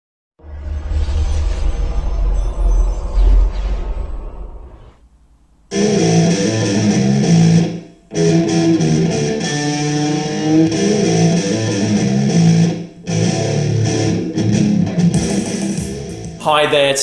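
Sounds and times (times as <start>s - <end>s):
guitar-led intro music: 5.7s - 17.0s.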